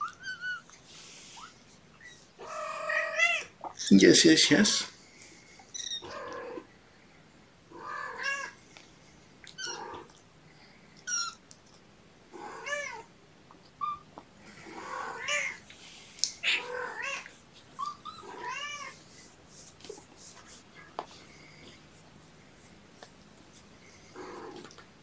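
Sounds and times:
kittens meowing: 0.0s - 0.7s, 1.3s - 3.9s, 5.6s - 6.7s, 7.7s - 8.6s, 9.5s - 10.2s, 11.0s - 11.4s, 12.4s - 13.1s, 13.8s - 15.6s, 16.4s - 19.0s, 24.1s - 24.8s.

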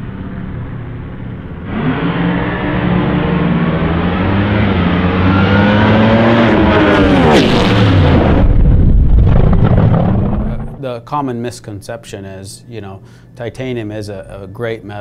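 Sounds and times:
drag car engine passing by: 1.6s - 10.8s.

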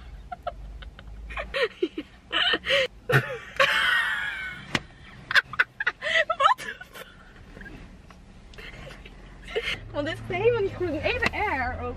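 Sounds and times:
women laughing: 0.1s - 7.8s.

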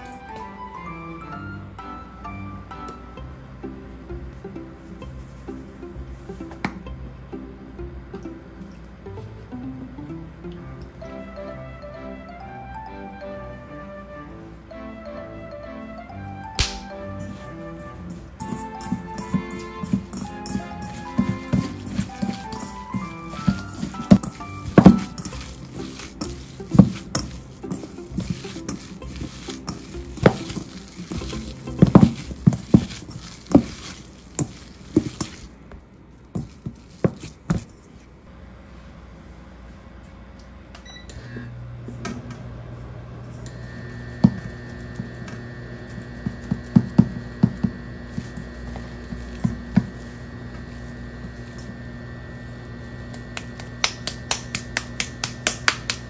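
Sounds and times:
hands slapping meat in metal bowl: 16.6s - 17.6s, 18.4s - 35.5s, 53.4s - 56.0s
steady electric hum: 16.6s - 56.0s
high whine of induction hob: 40.8s - 56.0s.

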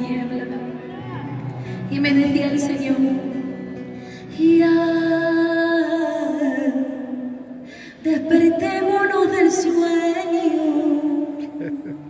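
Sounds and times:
woman singing worship song: 4.2s - 11.4s.

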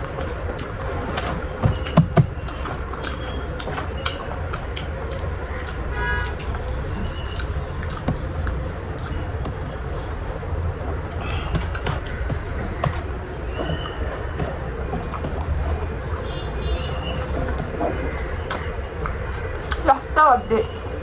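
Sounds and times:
chewing and bone crunching: 0.0s - 10.6s, 11.2s - 19.8s
wet mouth clicks and smacks: 7.3s - 9.8s, 17.2s - 19.9s.

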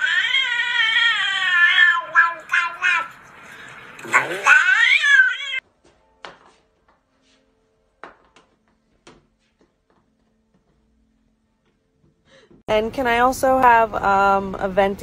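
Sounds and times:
cat yowling: 0.0s - 3.2s, 4.1s - 5.6s.

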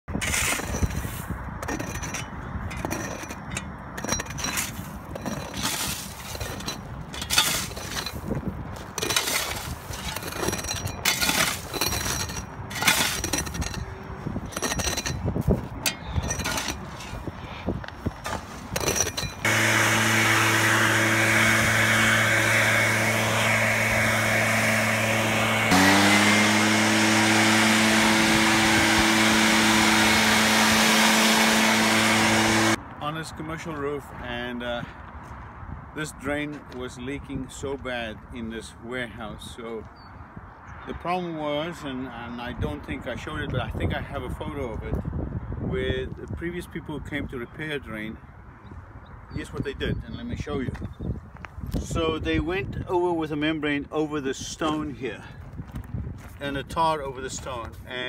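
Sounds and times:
shovel scraping gravel: 0.1s - 32.8s
leaf blower running: 19.4s - 32.8s.

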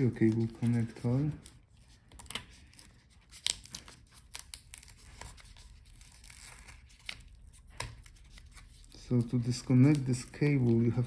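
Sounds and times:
adhesive tape peeling: 2.2s - 8.9s.

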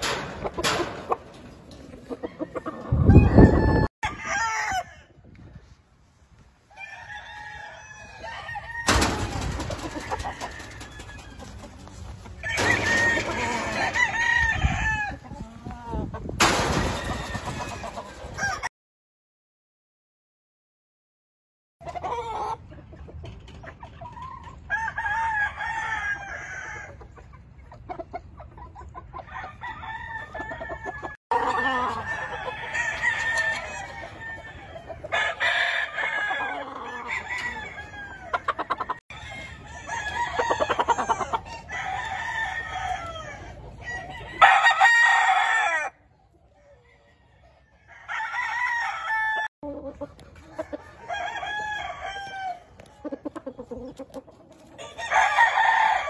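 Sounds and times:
chickens clucking: 0.0s - 3.8s, 8.1s - 18.6s, 21.8s - 24.9s, 26.2s - 41.9s, 49.6s - 55.3s
roosters crowing: 1.9s - 5.2s, 6.6s - 15.6s, 16.5s - 18.7s, 24.6s - 27.0s, 29.2s - 49.5s, 50.4s - 53.6s, 54.7s - 56.0s.

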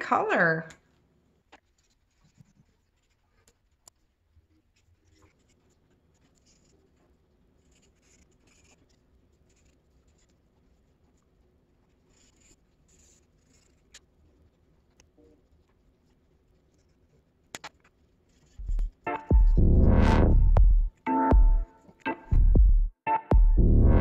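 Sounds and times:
markers rubbing on paper: 1.6s - 19.0s.

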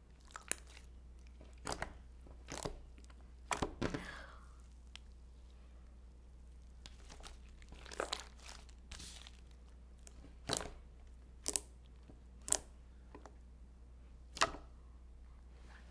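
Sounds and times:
steady low hum: 0.0s - 15.9s
slime crackling and popping: 0.2s - 3.7s, 6.8s - 10.8s, 11.4s - 12.7s.

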